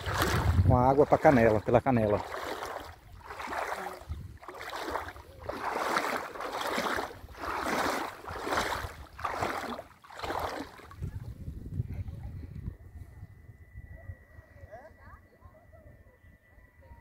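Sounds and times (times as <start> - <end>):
footsteps wading through water: 0.0 - 11.4.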